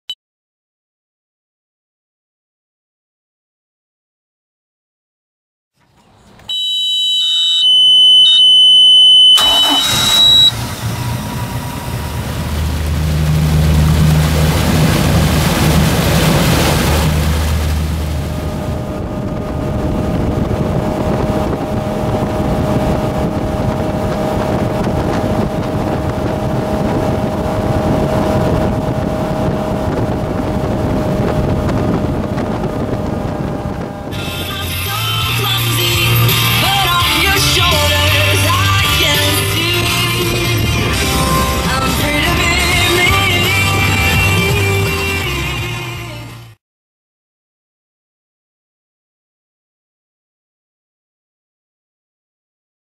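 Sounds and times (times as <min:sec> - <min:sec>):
boat engine starting and running: 0:05.8 - 0:46.6
high warning tone: 0:06.4 - 0:14.0
wind and water rushing: 0:09.4 - 0:46.2.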